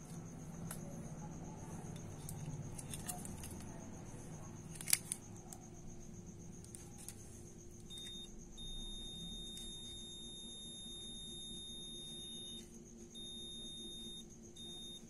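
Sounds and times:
faint high whine: 0:00.0 - 0:15.0
multimeter continuity beep: 0:07.8 - 0:15.0.

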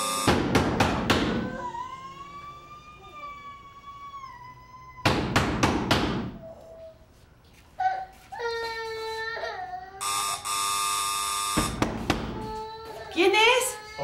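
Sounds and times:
heavy pounding on door: 0:11.6 - 0:12.4.

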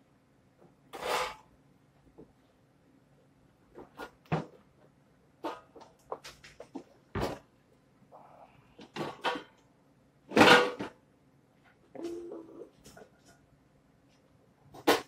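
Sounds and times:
items clattering and clicking: 0:08.8 - 0:09.6.

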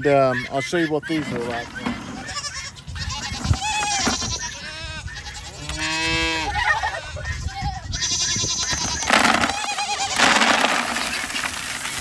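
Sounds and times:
goats bleating: 0:00.2 - 0:11.4
feed pellets pouring into plastic bucket: 0:10.1 - 0:12.0.

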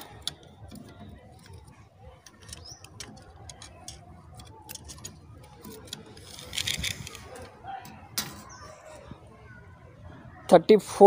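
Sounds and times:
tape measure clicking on metal: 0:02.2 - 0:07.5.

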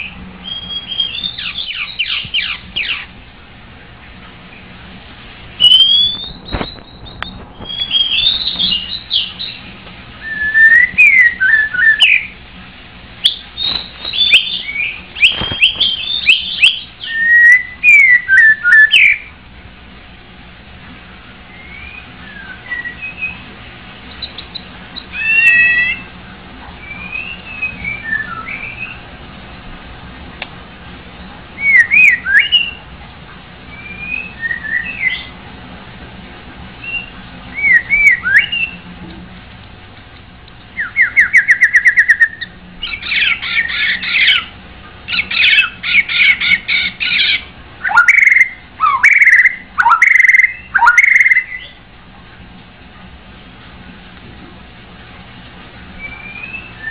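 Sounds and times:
bird singing whistled phrases: 0:00.0 - 0:03.1, 0:05.6 - 0:12.4, 0:13.2 - 0:19.3, 0:21.5 - 0:23.5, 0:24.1 - 0:26.1, 0:26.8 - 0:29.1, 0:31.6 - 0:32.9, 0:33.7 - 0:35.3, 0:36.8 - 0:38.9, 0:40.8 - 0:44.5, 0:45.1 - 0:51.8, 0:56.0 - 0:56.9.

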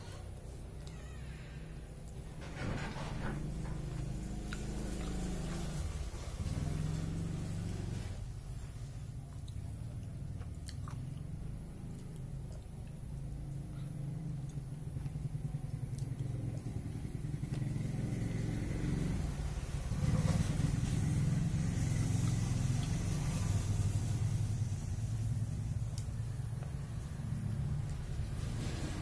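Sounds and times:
vehicle engine rumble: 0:00.0 - 0:29.0
chewing clicks: 0:04.4 - 0:05.2, 0:09.3 - 0:13.3, 0:14.4 - 0:16.8.

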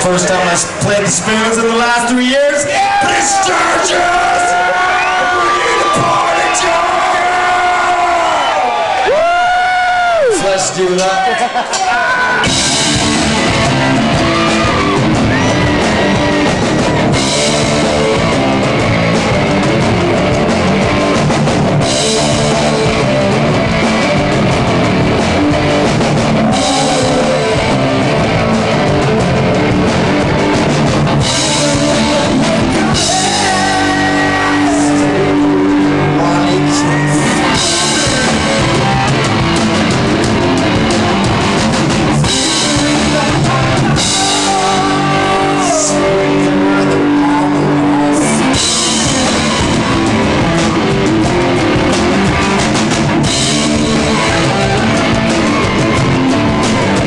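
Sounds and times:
rock band playing: 0:00.0 - 0:57.0
person singing: 0:26.2 - 0:29.5, 0:31.2 - 0:39.2, 0:42.1 - 0:50.6, 0:53.5 - 0:57.0.

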